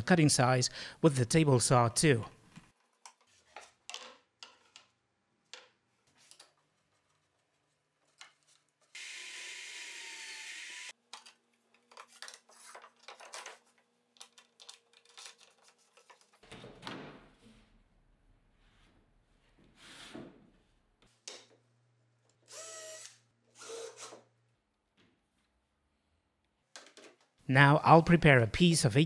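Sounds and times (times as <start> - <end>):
electric drill boring into plywood: 9.0 - 10.9, 22.5 - 24.0.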